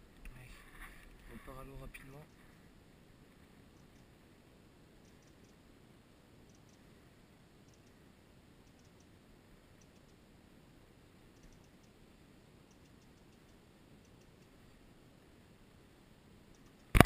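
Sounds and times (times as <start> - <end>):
faint steady hiss: 0.0 - 17.0
faint irregular ticking: 3.6 - 4.2, 5.0 - 5.7, 6.4 - 10.4, 11.0 - 15.7, 16.4 - 17.0.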